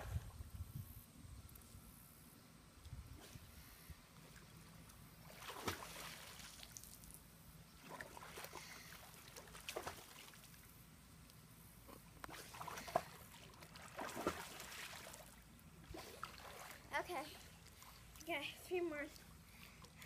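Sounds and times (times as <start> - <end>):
pool water splashing: 4.1 - 20.0.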